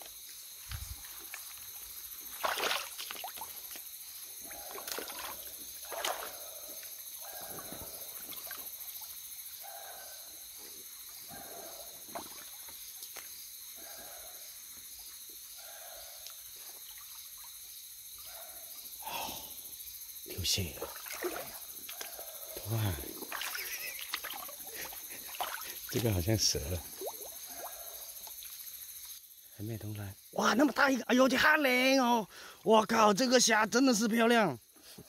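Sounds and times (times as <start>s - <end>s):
night insects chorus: 0.0s - 35.0s
water sloshing and splashing: 0.7s - 9.2s, 12.0s - 12.8s, 20.6s - 28.5s.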